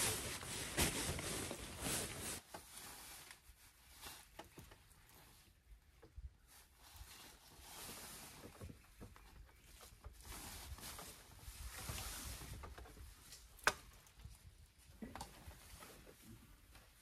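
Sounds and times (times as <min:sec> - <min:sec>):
fabric rustling: 0:00.0 - 0:03.3.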